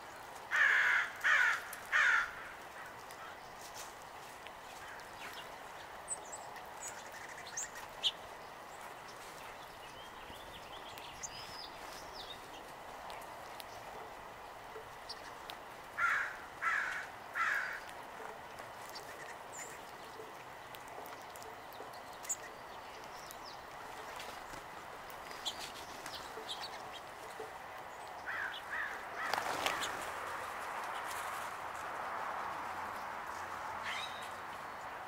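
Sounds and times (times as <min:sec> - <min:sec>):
birds' wings flapping: 0:28.8 - 0:31.9
songbird calls: 0:33.8 - 0:34.4.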